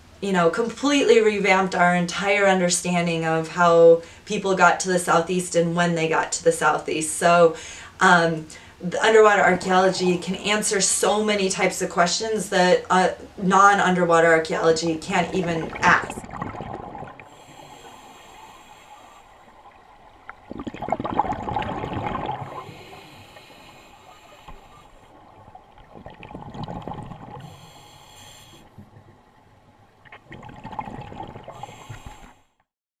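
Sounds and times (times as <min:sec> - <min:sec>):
bubbling exhalations: 0:15.1 - 0:19.2, 0:20.3 - 0:24.7, 0:25.7 - 0:27.8, 0:30.1 - 0:32.4
hissing regulator inhalations: 0:17.2 - 0:19.8, 0:22.4 - 0:25.2, 0:27.4 - 0:28.8, 0:31.5 - 0:32.6.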